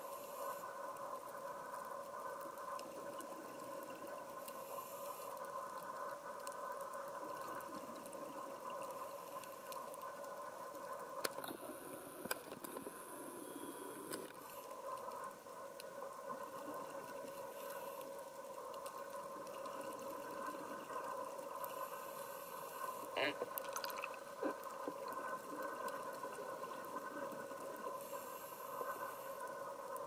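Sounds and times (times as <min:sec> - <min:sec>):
crackling clicks: 0:00.0 - 0:30.0
underwater hum: 0:00.0 - 0:30.0.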